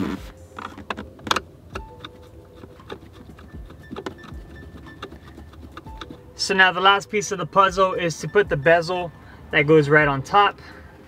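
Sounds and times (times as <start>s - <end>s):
screwdriver clicking and scraping on bolts: 0.5s - 6.3s.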